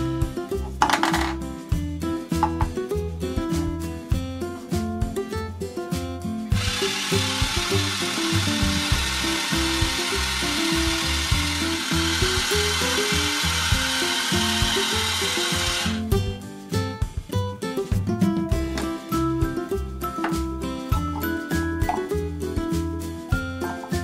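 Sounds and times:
guitar background music: 0:00.0 - 0:24.0
blender whirring: 0:06.6 - 0:16.0.

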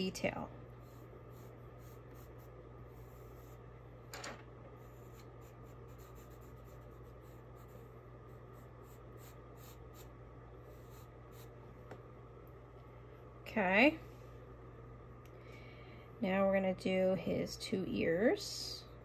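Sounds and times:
steady low hum: 0:00.0 - 0:19.0
pencil scratching on paper: 0:00.7 - 0:03.7, 0:04.8 - 0:11.6.

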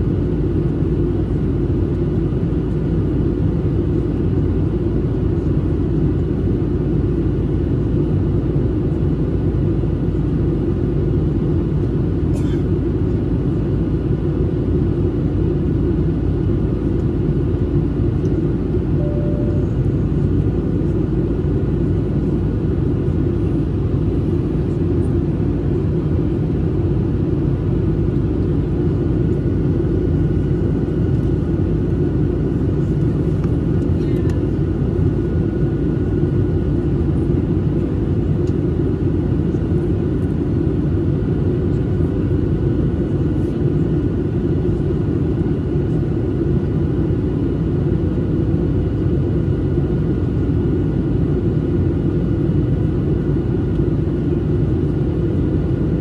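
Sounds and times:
airplane cabin drone: 0:00.0 - 0:56.0
faint steady tones: 0:19.0 - 0:20.3.

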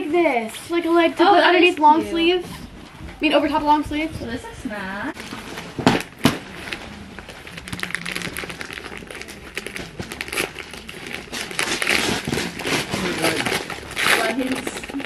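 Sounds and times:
gift wrapping crinkling: 0:05.2 - 0:15.0.

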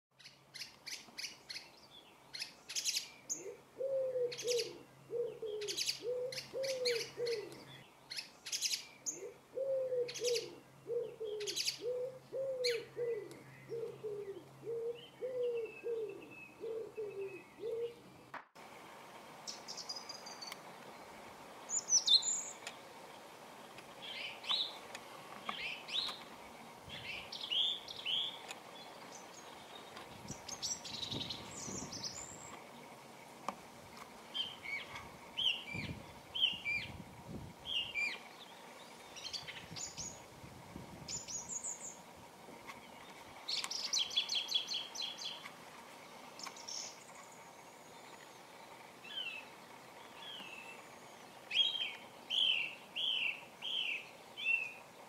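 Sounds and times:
faint steady hum: 0:00.2 - 0:55.0
whistled birdsong phrases: 0:00.3 - 0:18.0, 0:21.7 - 0:22.6, 0:26.9 - 0:32.6, 0:34.3 - 0:37.0, 0:37.6 - 0:40.2, 0:41.1 - 0:42.0, 0:42.8 - 0:45.4, 0:46.4 - 0:54.9
low cooing: 0:03.4 - 0:07.7, 0:09.1 - 0:18.0.

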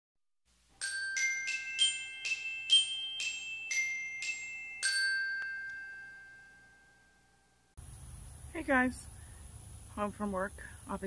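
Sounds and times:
glockenspiel jingle: 0:00.8 - 0:07.7.

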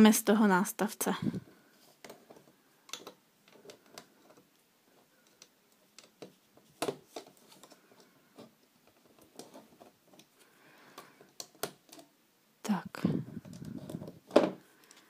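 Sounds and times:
plastic clicks and taps: 0:02.0 - 0:04.1.

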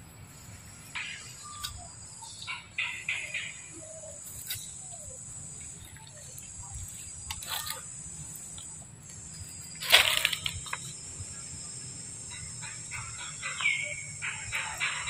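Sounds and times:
high-pitched insect drone: 0:04.2 - 0:15.0.

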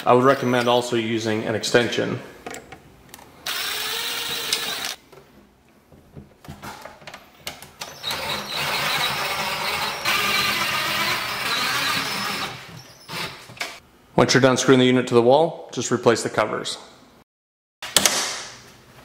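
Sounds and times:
cordless drill driving screws: 0:03.4 - 0:05.0, 0:07.8 - 0:13.7.

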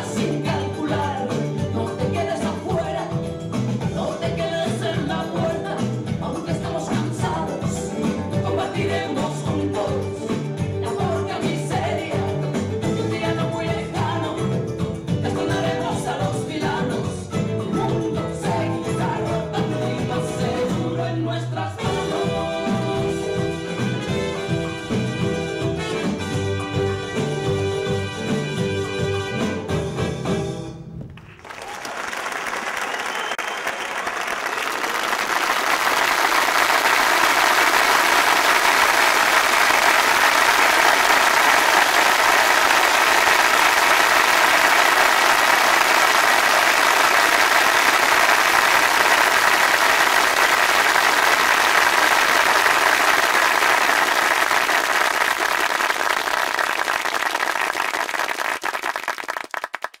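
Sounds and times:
audience applauding: 0:31.1 - 1:00.0.

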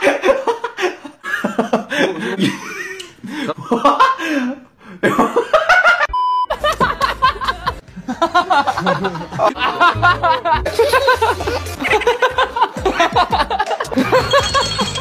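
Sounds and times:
person laughing: 0:00.0 - 0:15.0
young man laughing hard: 0:00.0 - 0:15.0
short steady beep: 0:06.1 - 0:06.5.

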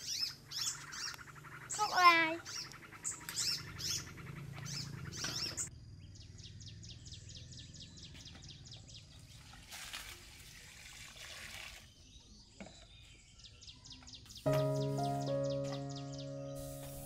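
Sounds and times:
bird chirping: 0:00.0 - 0:09.4, 0:11.9 - 0:17.0
water poured into metal pot: 0:09.4 - 0:12.0
music: 0:14.4 - 0:17.0.

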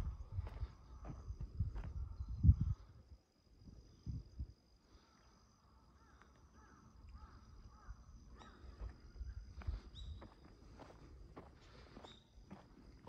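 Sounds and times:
insects trilling: 0:00.0 - 0:13.0
distant bird calling: 0:05.9 - 0:09.0.

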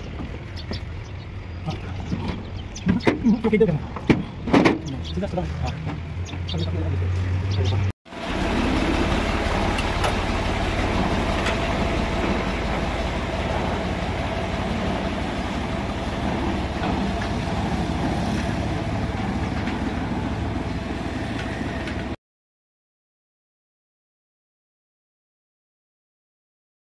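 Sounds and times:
tractor diesel engine running: 0:00.0 - 0:05.4, 0:07.5 - 0:22.2.

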